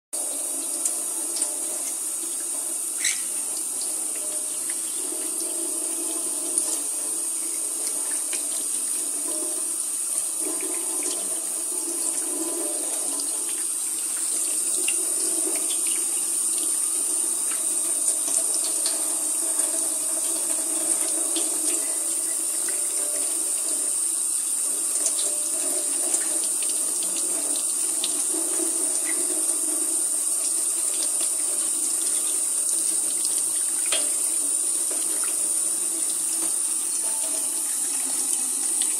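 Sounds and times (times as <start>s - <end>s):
tap running into a steel sink: 0.6s - 16.8s, 17.5s - 23.9s, 30.8s - 38.9s
water splashes and drips: 30.8s - 38.9s.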